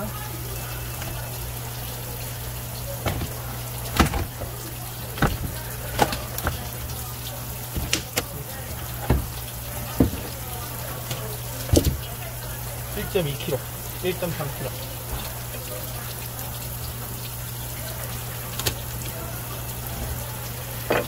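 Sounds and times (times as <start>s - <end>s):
tap water running into sink: 0.0s - 21.0s
sharp knocks: 3.0s - 4.6s, 5.2s - 6.9s, 7.7s - 10.4s.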